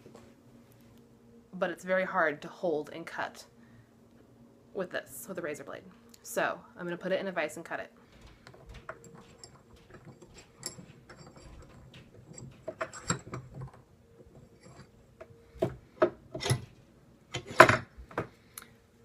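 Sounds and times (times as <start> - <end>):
faint steady hum: 0.0 - 19.0
vise clicking and rattling: 8.2 - 15.0, 15.6 - 17.9.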